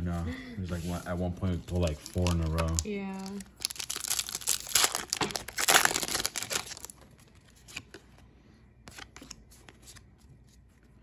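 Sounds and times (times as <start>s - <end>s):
foil wrapper tearing and crinkling: 1.8s - 7.0s.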